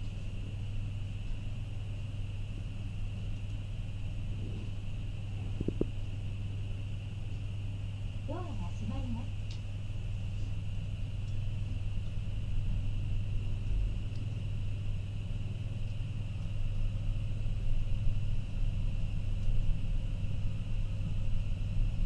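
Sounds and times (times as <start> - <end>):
faint high hum: 0.0 - 22.0.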